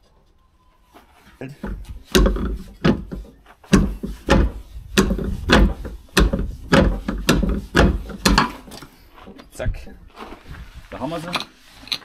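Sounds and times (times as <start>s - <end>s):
heavy metal knocks: 1.6s - 8.7s.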